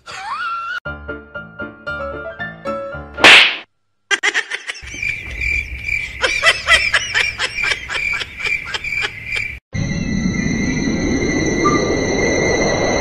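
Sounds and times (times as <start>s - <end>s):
loud sharp slap: 3.2s - 3.7s
steady high tone: 9.8s - 13.0s.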